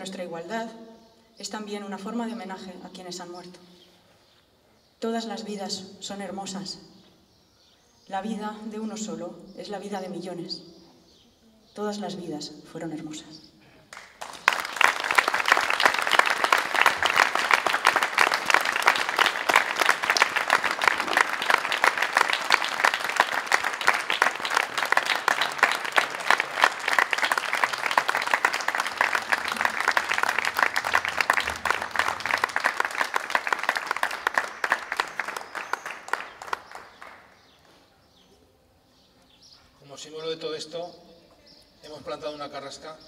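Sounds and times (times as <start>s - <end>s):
crowd applauding: 13.9s - 37.4s.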